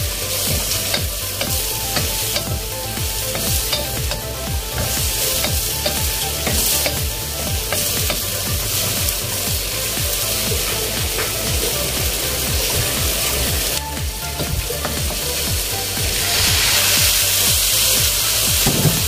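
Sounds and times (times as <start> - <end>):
vegetables sizzling in a wok: 0.0 - 19.0
spatula scraping and tapping wok: 0.4 - 9.5.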